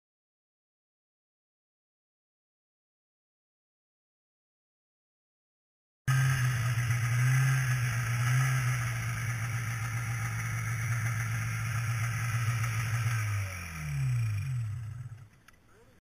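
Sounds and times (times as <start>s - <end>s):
snowmobile engine idling: 6.1s - 16.0s.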